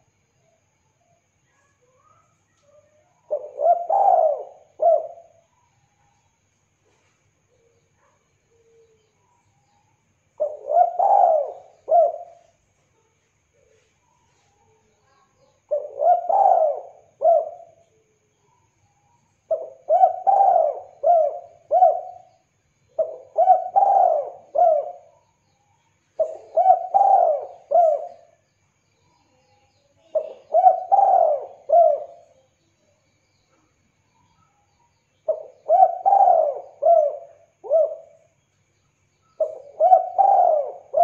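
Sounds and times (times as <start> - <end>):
dove cooing: 3.3 - 5.4, 10.4 - 12.6, 15.7 - 17.8, 19.5 - 22.4, 23.0 - 25.2, 26.2 - 28.4, 30.0 - 32.5, 35.3 - 38.3, 39.4 - 41.0.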